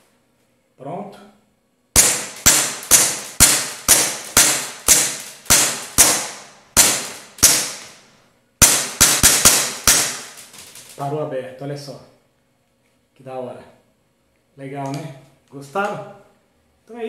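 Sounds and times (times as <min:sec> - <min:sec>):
airsoft pistol shots: 0:02.0 - 0:10.5.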